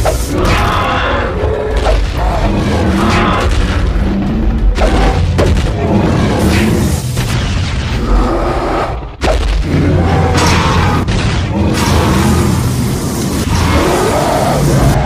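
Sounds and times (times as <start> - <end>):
deep rumble: 0.1 - 15.0
background music: 0.3 - 12.4
cartoon booms and impacts: 4.7 - 8.3, 9.2 - 12.3.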